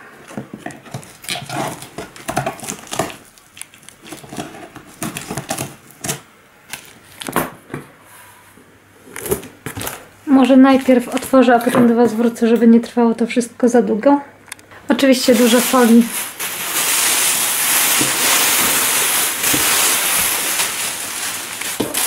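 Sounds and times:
tape crinkling and tearing: 0.8s - 7.3s, 15.3s - 22.0s
scissors cutting packing tape: 0.9s - 6.9s.

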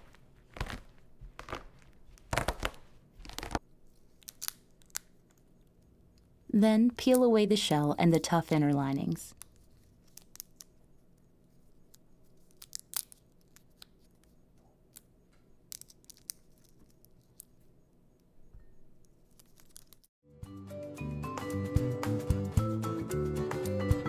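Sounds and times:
chestnut shells crackling: 0.5s - 5.7s, 9.0s - 10.8s, 11.7s - 14.2s, 14.9s - 17.6s, 19.2s - 20.1s
music: 20.2s - 24.0s.

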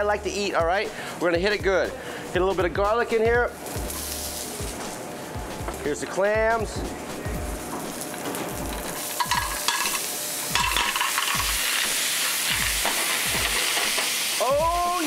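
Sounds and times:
loud sizzling frying: 0.0s - 15.0s
clams clattering into a pan: 9.1s - 11.8s.

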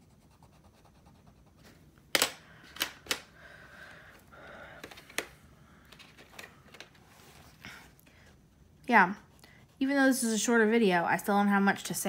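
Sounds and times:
pencils clicking and tapping: 2.1s - 3.3s, 4.6s - 7.0s.

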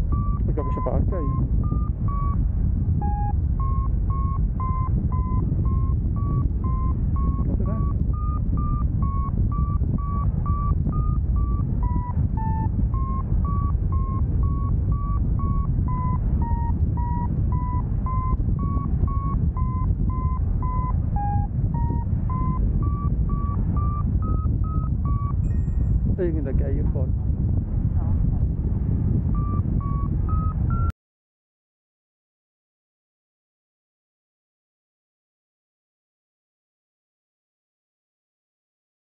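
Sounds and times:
variometer short beeps: 0.0s - 27.1s, 29.1s - 30.9s
wind rushing over microphone: 0.0s - 30.9s.

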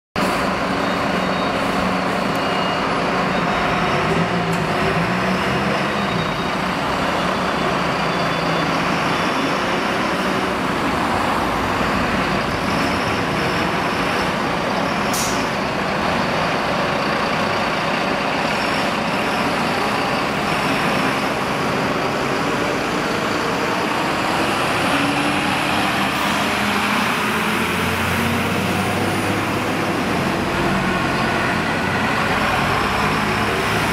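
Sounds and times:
diesel truck engines: 0.2s - 33.9s
short sharp hiss: 15.1s - 15.5s.

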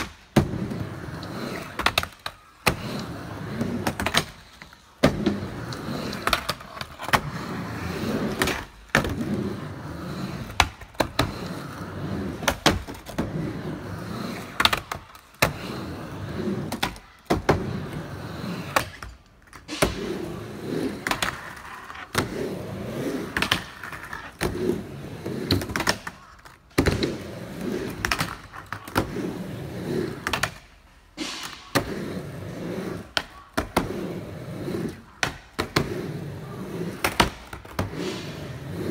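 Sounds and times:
skateboard wheels rumbling: 0.0s - 31.1s, 31.7s - 38.9s
skateboard clacks: 0.0s - 38.9s.

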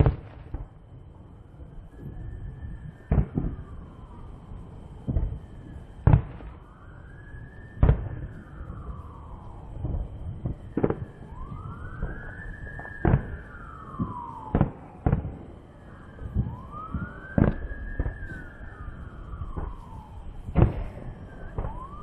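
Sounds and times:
firework bangs: 0.0s - 1.1s, 1.9s - 4.0s, 5.0s - 6.7s, 7.8s - 22.0s
siren wailing: 0.0s - 22.0s.

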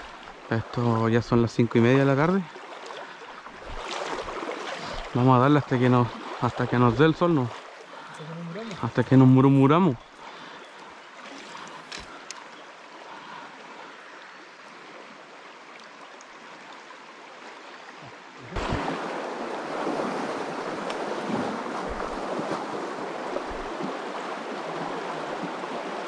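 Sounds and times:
river water rushing: 0.0s - 26.0s.

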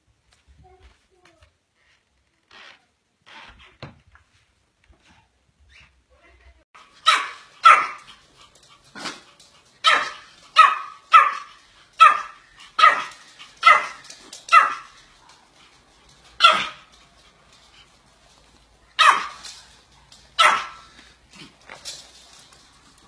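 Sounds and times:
small dog barking: 7.0s - 8.1s, 9.8s - 15.4s, 16.4s - 16.9s, 18.9s - 19.6s, 20.4s - 20.9s.

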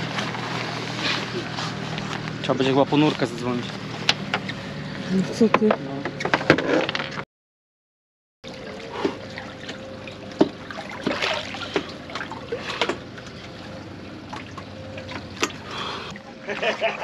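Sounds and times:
water splashing and sloshing: 0.0s - 7.2s, 8.4s - 17.0s.

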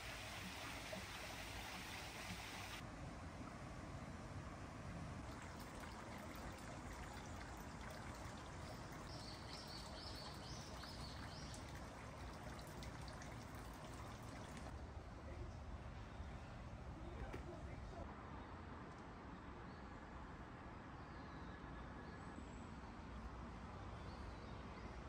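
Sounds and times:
running water trickling: 0.0s - 2.8s, 5.2s - 14.8s.

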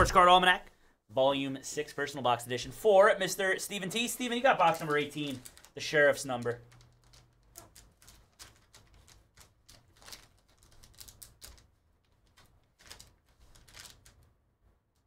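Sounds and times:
plastic pack crinkling and tearing: 3.9s - 14.3s.

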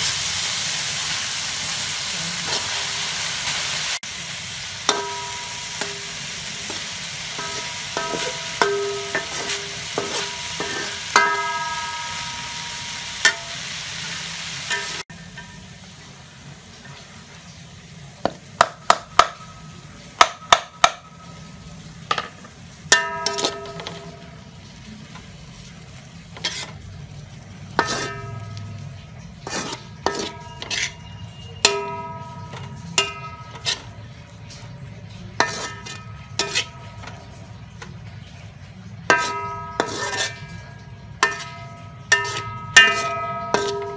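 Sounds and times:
meat sizzling in a wok: 0.0s - 43.9s
metal spatula knocking on pan: 4.9s - 13.6s, 18.2s - 21.4s, 22.1s - 24.4s, 27.8s - 34.4s, 39.0s - 43.9s.

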